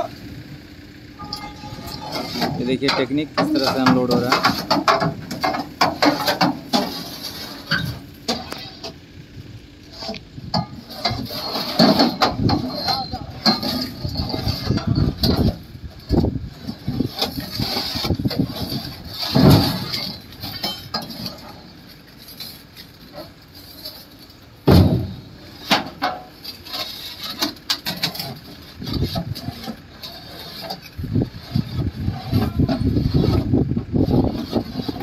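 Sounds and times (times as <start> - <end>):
loud thuds: 24.6 - 25.4.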